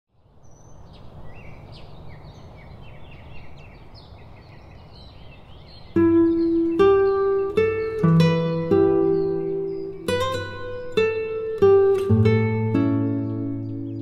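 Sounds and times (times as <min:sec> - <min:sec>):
songbirds chirping: 0:00.1 - 0:14.0
acoustic guitar plucking: 0:06.0 - 0:14.0.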